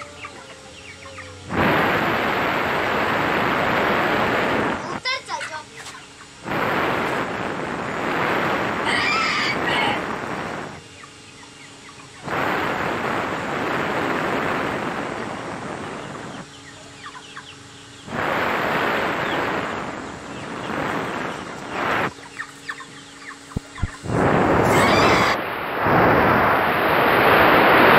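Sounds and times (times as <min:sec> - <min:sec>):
chickens calling: 0:00.0 - 0:01.6, 0:04.3 - 0:06.5, 0:08.5 - 0:12.5, 0:15.1 - 0:25.4
loud rushing noise: 0:01.4 - 0:04.9, 0:06.4 - 0:10.8, 0:12.2 - 0:16.4, 0:18.0 - 0:22.9, 0:23.5 - 0:27.9.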